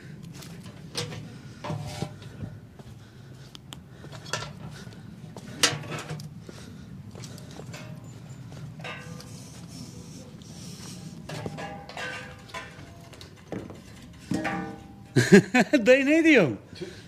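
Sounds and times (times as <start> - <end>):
dishes and cutlery clinking: 7.7 - 9.8, 11.3 - 15.2.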